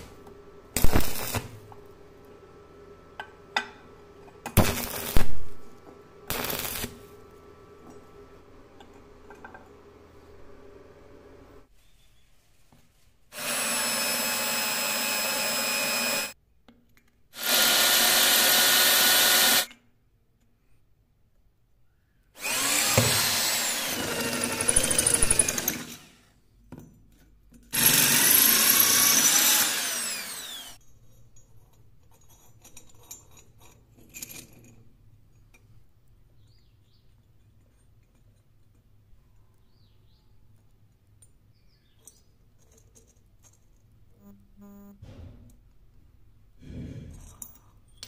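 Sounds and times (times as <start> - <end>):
electric drill boring into steel: 13.3 - 16.4, 17.4 - 19.7, 22.4 - 26.3, 27.8 - 30.8.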